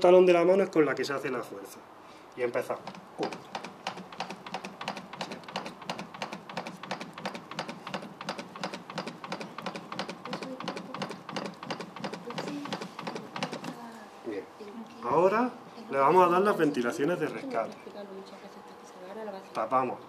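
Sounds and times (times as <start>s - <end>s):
cpr manikin clicking: 2.7s - 13.8s.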